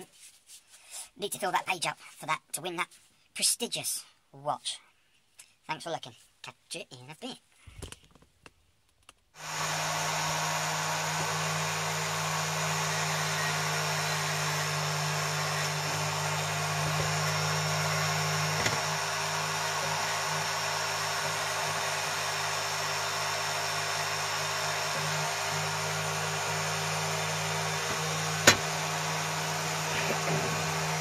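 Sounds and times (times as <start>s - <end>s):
bench grinder motor running: 9.4s - 31.0s.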